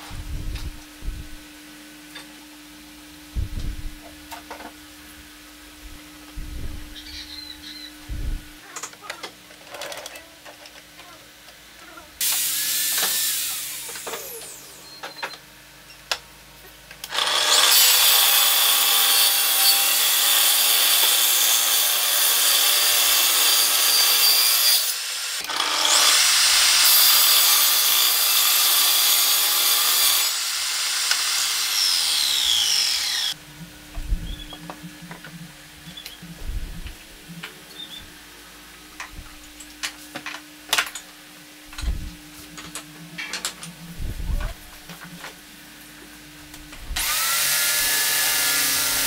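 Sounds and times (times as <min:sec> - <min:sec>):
table saw cutting wood: 0:12.2 - 0:14.9, 0:17.0 - 0:33.4, 0:47.0 - 0:49.0.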